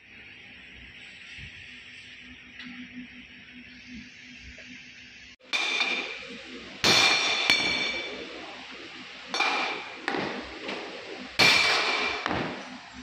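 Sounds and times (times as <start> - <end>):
hammer clanging on steel tubing: 5.5 - 6.2, 6.8 - 8.2.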